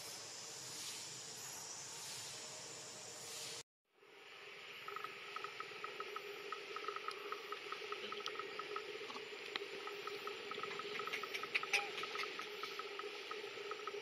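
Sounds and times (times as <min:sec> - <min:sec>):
steady hiss: 0:00.0 - 0:14.0
insects ticking: 0:04.5 - 0:14.0.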